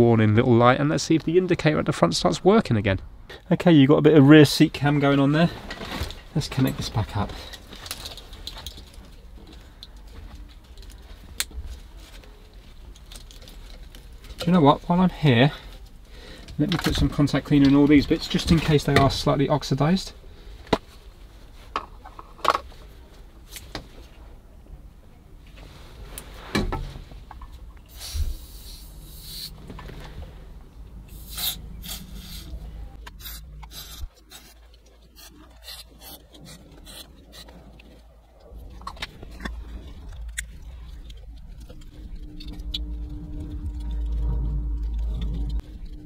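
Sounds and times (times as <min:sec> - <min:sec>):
faint steady hum: 0:00.0 - 0:46.0
low rumble: 0:27.2 - 0:35.1, 0:36.6 - 0:46.0.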